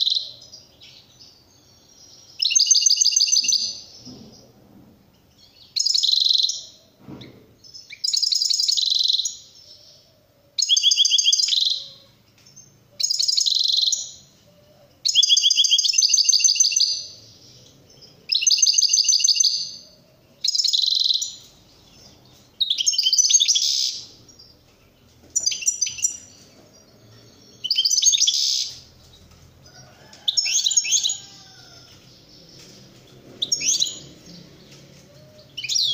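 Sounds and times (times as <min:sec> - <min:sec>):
finch trilling song: 0:00.0 - 0:03.9, 0:05.5 - 0:06.8, 0:07.8 - 0:10.0, 0:10.6 - 0:12.1, 0:12.9 - 0:14.4, 0:15.0 - 0:17.5, 0:18.3 - 0:21.5, 0:22.6 - 0:24.5, 0:25.4 - 0:28.9, 0:33.4 - 0:35.9.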